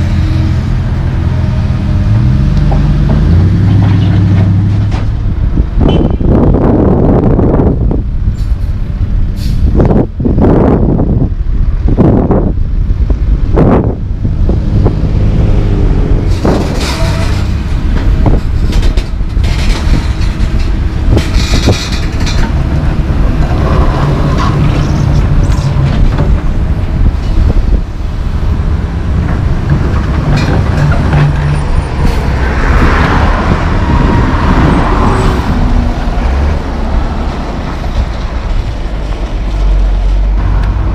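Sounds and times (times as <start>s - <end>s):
heavy diesel engines running: 0.0s - 40.9s
street traffic: 0.0s - 40.9s.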